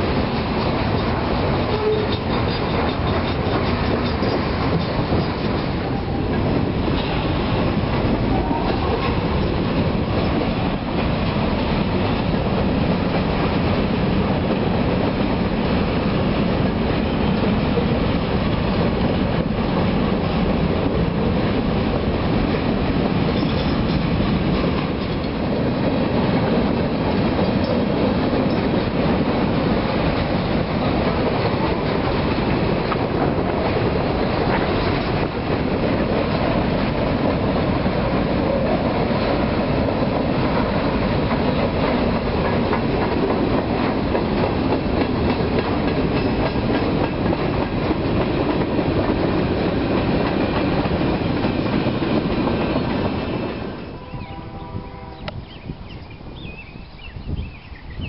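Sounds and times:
freight train cars rolling past: 0.0 - 58.0.

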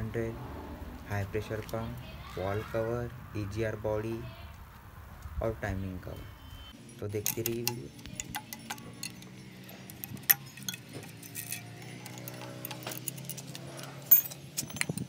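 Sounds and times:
metal tools clicking and clinking: 6.8 - 15.0.

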